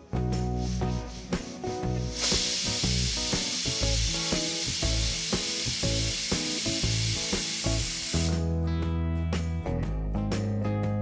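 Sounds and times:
plucked background music: 0.0 - 11.0
pressure cooker hissing steam: 0.6 - 8.4.

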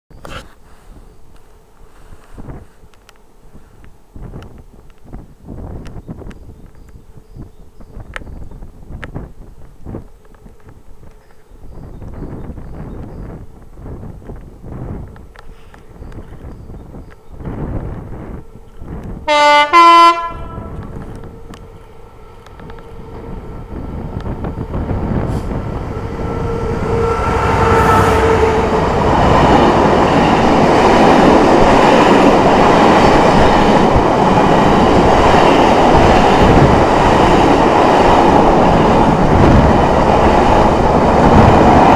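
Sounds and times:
diesel locomotive engine: 0.5 - 41.9
two-tone locomotive horn: 19.2 - 29.6.

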